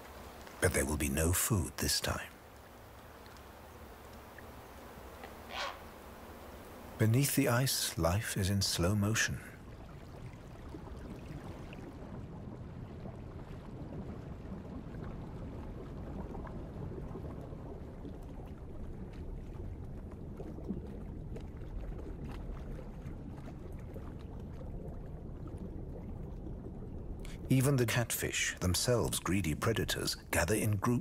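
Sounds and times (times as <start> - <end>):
faint ticks: 2.2 - 5.4
low underwater rumbling: 9.5 - 27.9.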